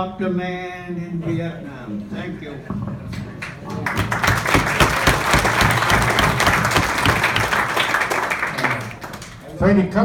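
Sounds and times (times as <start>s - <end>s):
diners applauding: 3.4s - 9.6s.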